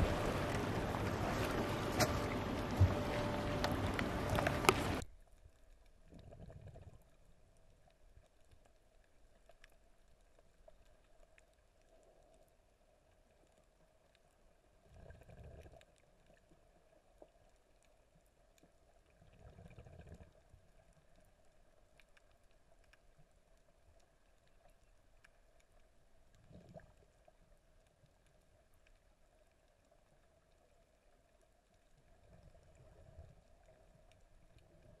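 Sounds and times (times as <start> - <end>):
faint muffled low rumble: 0.0 - 5.6
faint steady hum: 0.0 - 35.0.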